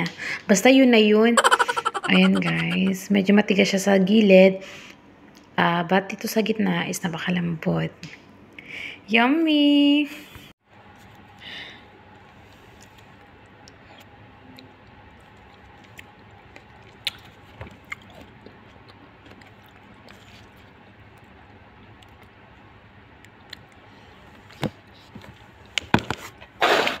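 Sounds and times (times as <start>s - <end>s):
quiet chewing: 12.5s - 25.8s.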